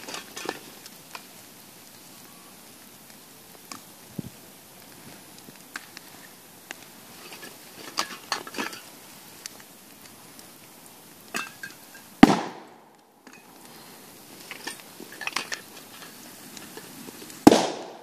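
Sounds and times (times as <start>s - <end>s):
aerosol cans bursting: 0.0s - 18.0s
fire popping and crackling: 0.0s - 18.0s.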